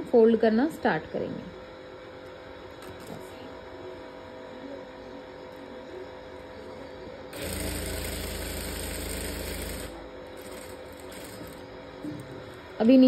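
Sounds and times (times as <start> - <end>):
sewing machine stitching: 7.4 - 11.7.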